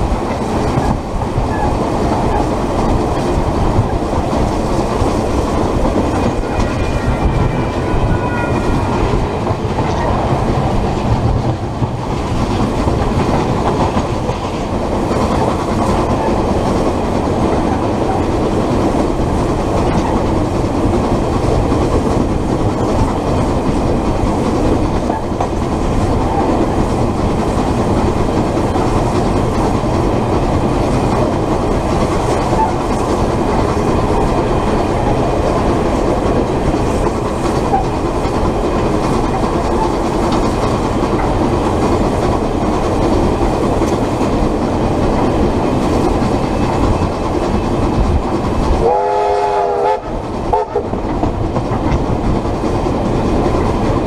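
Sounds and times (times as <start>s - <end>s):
train rumbling on track: 0.0s - 54.0s
locomotive whistle blasts: 48.8s - 50.8s.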